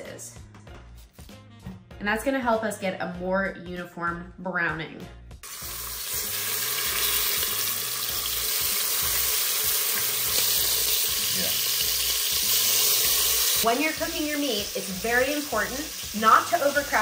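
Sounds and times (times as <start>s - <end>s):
beef sizzling in hot oil: 5.4s - 17.0s.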